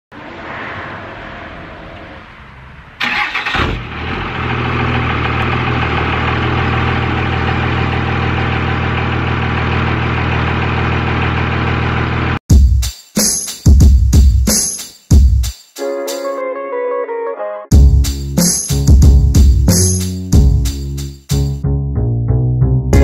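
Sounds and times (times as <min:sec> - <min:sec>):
diesel engine starting and idling: 0:00.2 - 0:12.4.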